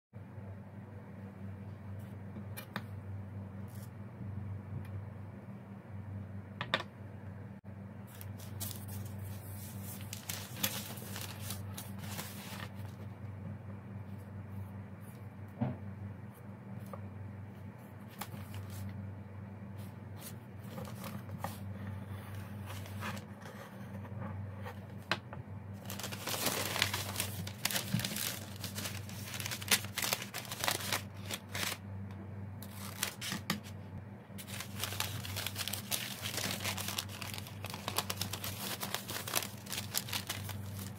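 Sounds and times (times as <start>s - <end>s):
steady low hum: 0.2s - 40.9s
paper rustling and crinkling: 8.1s - 13.1s, 18.0s - 19.0s, 20.2s - 21.7s, 22.3s - 23.3s, 25.8s - 31.8s, 32.6s - 33.8s, 34.4s - 40.9s.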